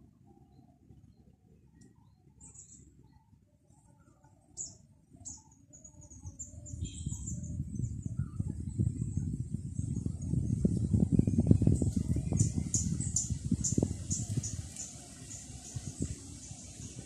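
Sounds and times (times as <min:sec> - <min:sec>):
small birds chirping: 0:00.4 - 0:17.0
wind buffeting microphone: 0:06.2 - 0:17.0
high bird trill: 0:12.3 - 0:15.9.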